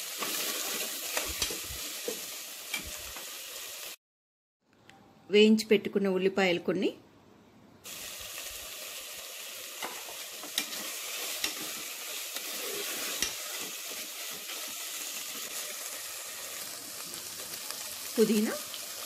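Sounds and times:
food sizzling in oil: 0.0s - 4.0s, 7.9s - 19.0s.

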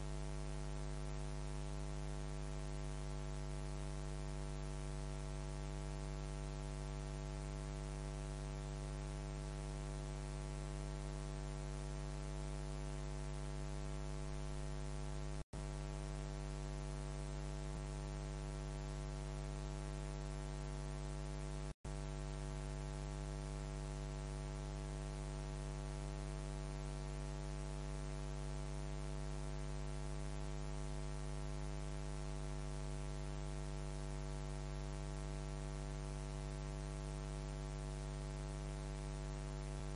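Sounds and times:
electrical mains hum with hiss: 0.0s - 16.8s.

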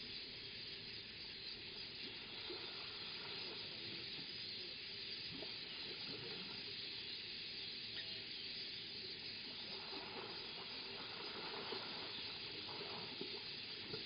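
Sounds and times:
outdoor ambient hiss: 0.0s - 14.0s.

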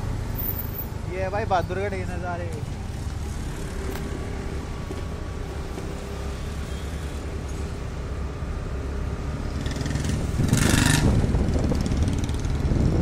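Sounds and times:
road noise: 0.0s - 13.0s
motorcycle engine drone: 2.6s - 13.0s.

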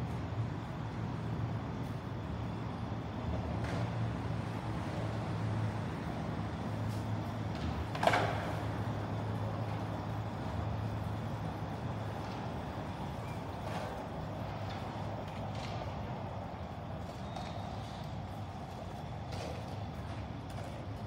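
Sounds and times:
city traffic hum: 0.0s - 21.0s.

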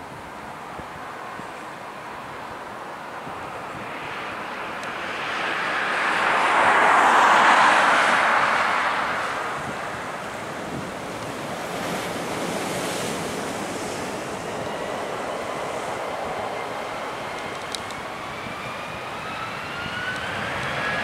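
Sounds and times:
wind: 0.0s - 21.0s
surf: 5.0s - 16.4s.

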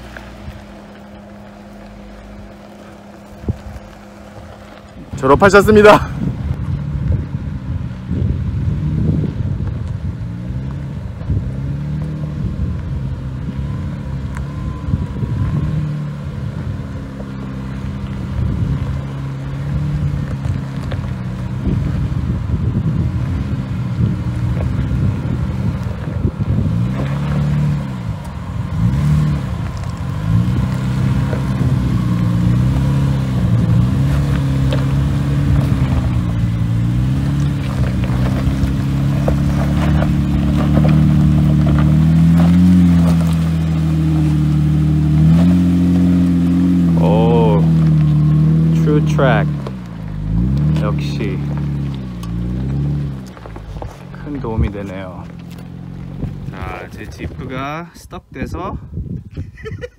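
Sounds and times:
engine revving uphill: 0.0s - 58.7s
tyres crackling on rock: 23.1s - 57.8s.

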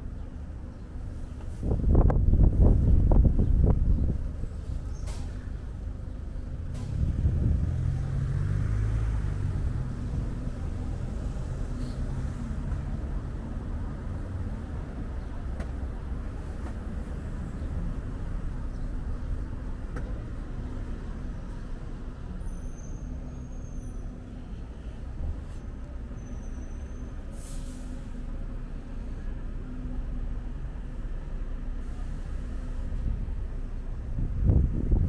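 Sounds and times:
traffic engines rumbling: 0.0s - 35.0s
brief hiss: 27.3s - 28.2s.

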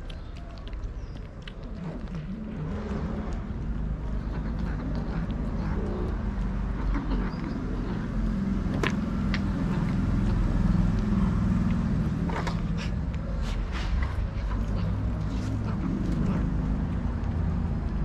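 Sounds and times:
cats chewing and licking: 0.0s - 18.0s
steady low rumble: 0.0s - 18.0s.

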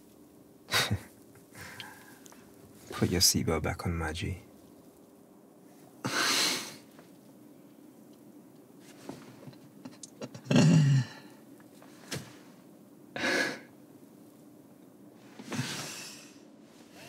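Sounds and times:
breathy exhale: 1.5s - 2.3s, 15.5s - 17.0s.

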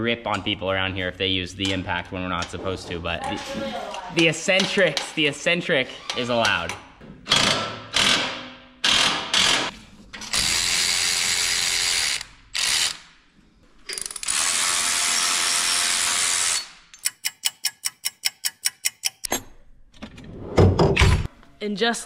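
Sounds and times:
ratchet clicking: 13.9s - 19.3s.

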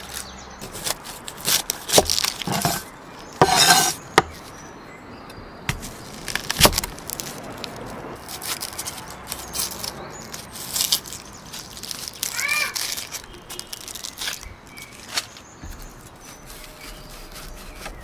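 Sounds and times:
onion skin crackling: 0.0s - 4.6s, 5.7s - 18.0s
cleaver striking chopping block: 0.6s - 2.8s, 3.4s - 4.4s.

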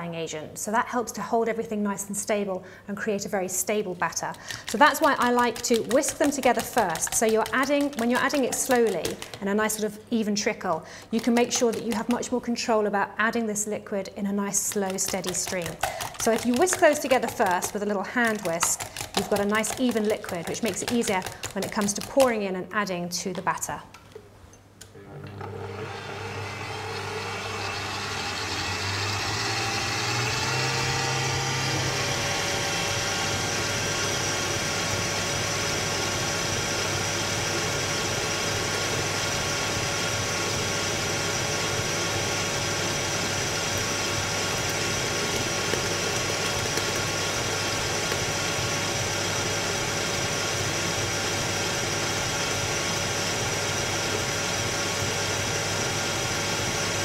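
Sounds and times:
stand mixer motor running: 4.5s - 9.4s, 15.4s - 21.7s, 25.0s - 57.0s.

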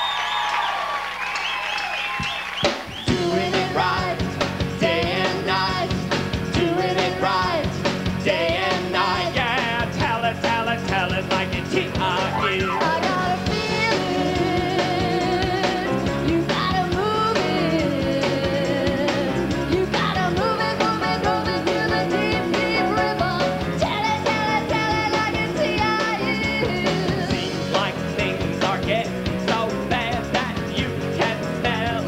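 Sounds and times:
audience whooping and cheering: 0.0s - 3.2s, 12.3s - 13.4s
live rock band playing: 2.5s - 32.0s
woman singing lead: 3.1s - 9.2s, 12.2s - 27.6s
drum kit hit: 12.0s - 14.1s.

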